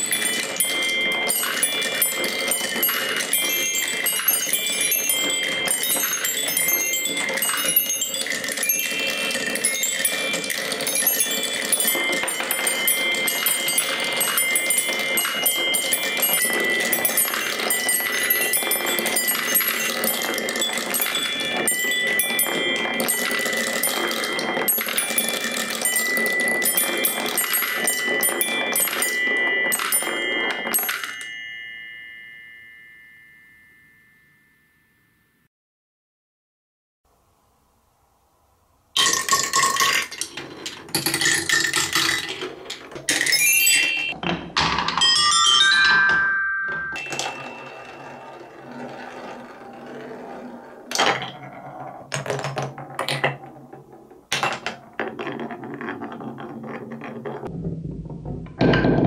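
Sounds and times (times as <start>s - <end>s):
marbles clattering down wooden run: 0.0s - 31.4s, 39.0s - 59.0s
ringing chime notes: 0.0s - 35.5s, 43.2s - 44.2s, 45.0s - 49.3s.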